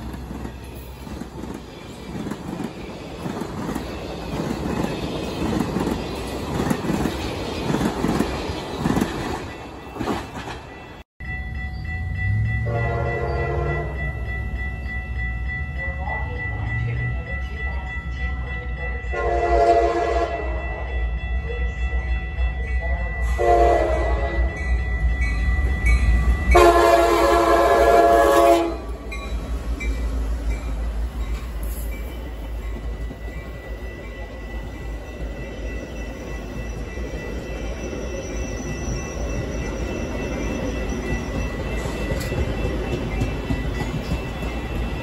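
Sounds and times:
train rumbling on rails: 0.0 - 45.0
locomotive horn blasts: 12.6 - 14.0, 19.1 - 20.6, 23.3 - 24.6, 26.5 - 29.1.

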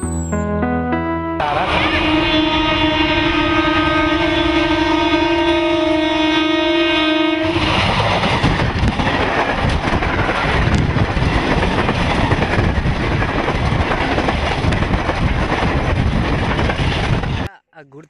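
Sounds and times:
locomotive horn: 0.4 - 7.8
train rumbling and clattering past: 7.4 - 17.5
wheels clicking over rail joints: 7.7 - 17.2.

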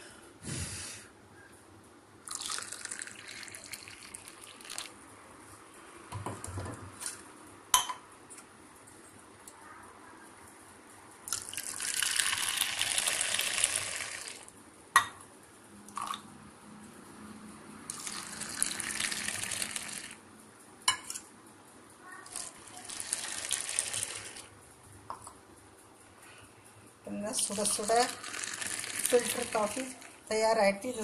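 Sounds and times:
coffee pouring and frothing: 2.3 - 5.0, 11.3 - 14.5, 17.9 - 20.2, 22.3 - 24.5, 27.5 - 30.3.

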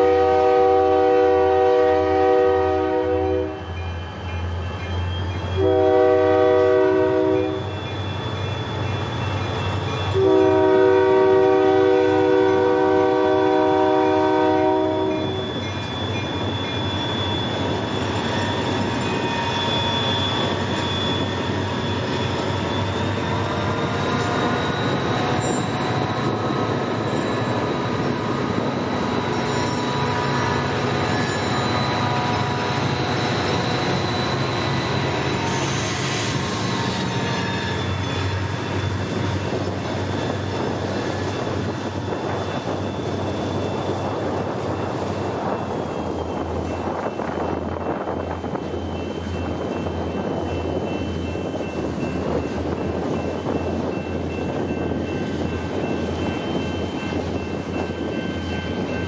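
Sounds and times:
locomotive air horn blasts: 0.0 - 3.6, 5.6 - 7.6, 10.2 - 15.4
diesel locomotive engines under load: 0.0 - 59.0
wheels rumbling on rail: 0.0 - 59.0.

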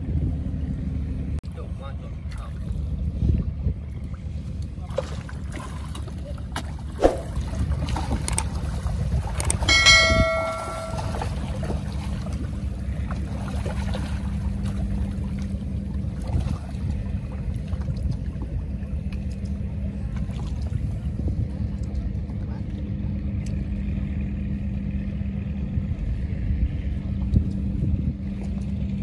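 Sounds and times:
sharp knock: 7.0 - 7.4
metallic clang: 9.7 - 11.5.

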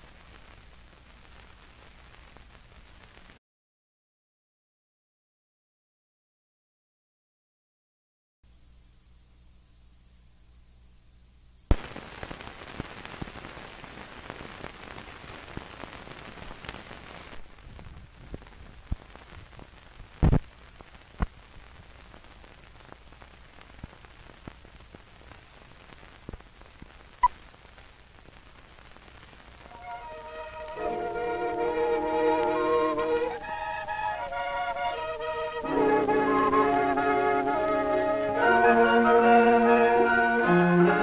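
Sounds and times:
film soundtrack hiss: 0.0 - 3.4, 8.4 - 41.0.

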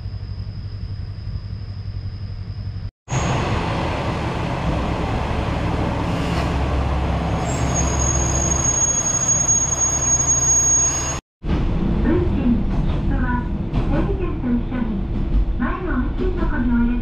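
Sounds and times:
train running gear rumbling: 0.0 - 17.0
high brake squeal: 7.3 - 11.2.

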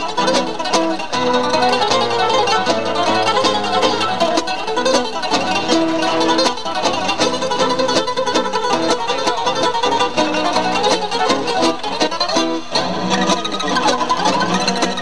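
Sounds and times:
acoustic guitars playing: 0.0 - 15.0.

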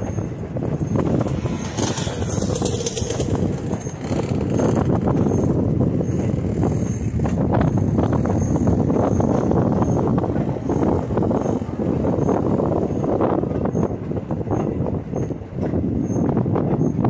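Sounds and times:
railroad car rolling on track: 0.0 - 17.0
wheel clicks and knocks: 0.6 - 8.3.

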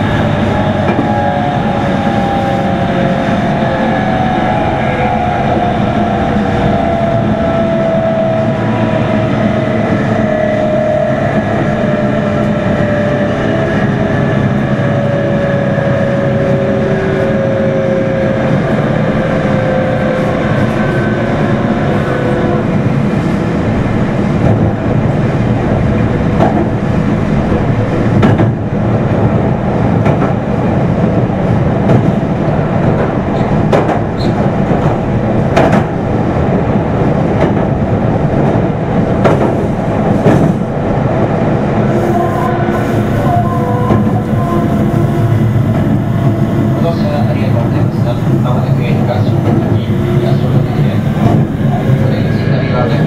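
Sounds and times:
wheels rumbling on rail: 0.0 - 53.0
clacks over rail joints: 26.3 - 26.8, 27.5 - 28.6, 32.9 - 36.0, 39.2 - 40.6
train motor whine: 41.9 - 47.1.

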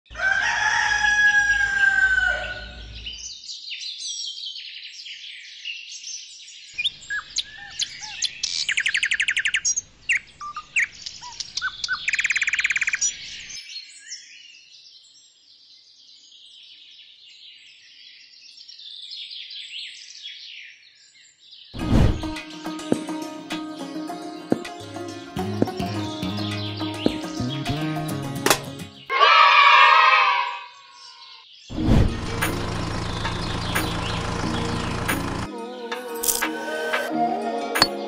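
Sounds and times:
birds chirping: 22.7 - 29.2, 32.6 - 35.5.

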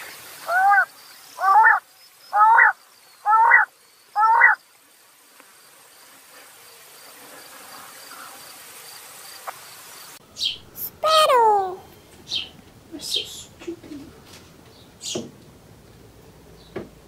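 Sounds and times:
quail calling: 0.4 - 4.6.

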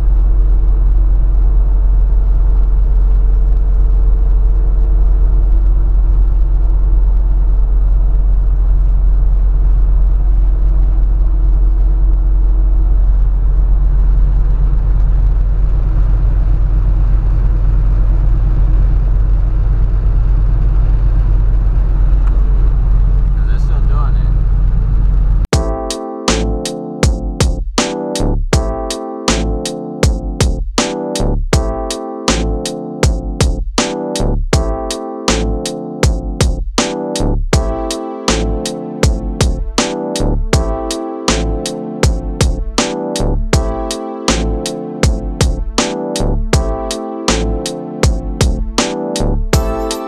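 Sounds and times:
pickup truck cab highway drone: 0.0 - 25.4, 34.2 - 36.0, 39.8 - 42.0, 43.0 - 43.6, 46.1 - 48.0.

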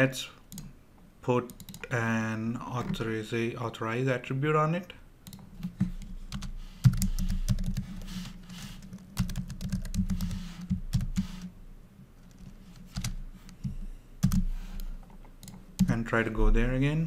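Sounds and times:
typing on a keyboard: 1.5 - 1.9, 5.2 - 11.5, 12.2 - 13.6, 14.2 - 14.5, 15.4 - 15.9.

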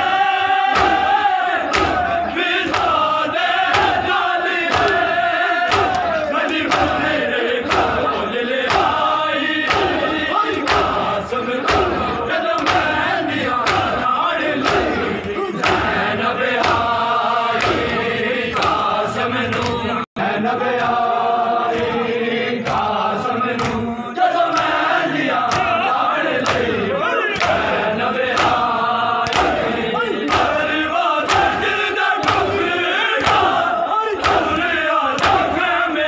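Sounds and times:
crowd of men chanting: 0.0 - 36.0
hands slapping chests: 0.7 - 19.9, 23.6 - 23.8, 24.5 - 25.8, 26.4 - 26.8, 27.4 - 27.7, 28.3 - 32.6, 33.2 - 33.6, 34.2 - 35.6.

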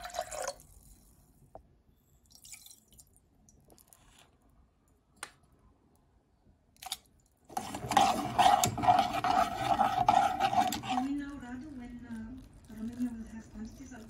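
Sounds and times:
metal spoon scraping saucepan: 7.5 - 11.4.

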